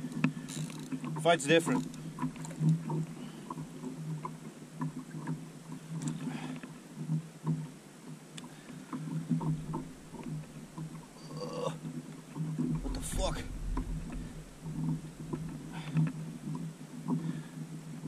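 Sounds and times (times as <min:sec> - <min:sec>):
water sloshing against kayak hull: 0:00.0 - 0:17.9
clicks and knocks of gear: 0:00.1 - 0:03.1
steady low hum: 0:09.3 - 0:11.6, 0:12.6 - 0:16.8
short rustle: 0:12.6 - 0:16.6.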